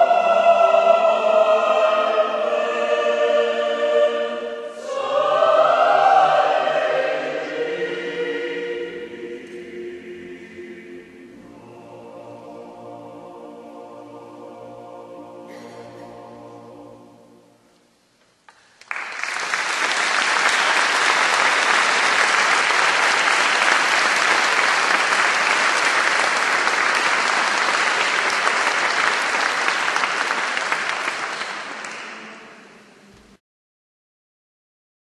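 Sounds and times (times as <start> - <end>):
choir and orchestra chord: 0.0 - 17.9
audience applause: 18.6 - 32.6.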